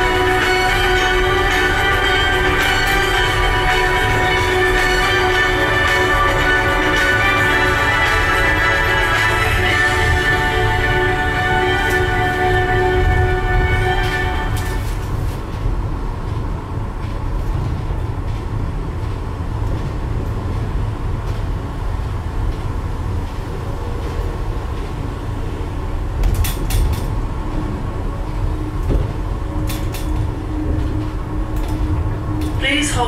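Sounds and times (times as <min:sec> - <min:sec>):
rattling clicks: 0:28.8 - 0:32.6.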